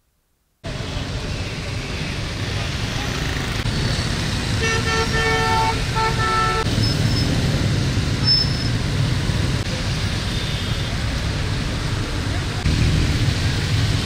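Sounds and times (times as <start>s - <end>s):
road traffic rumble: 0.6s - 14.0s
vehicle horn honking: 4.6s - 6.7s.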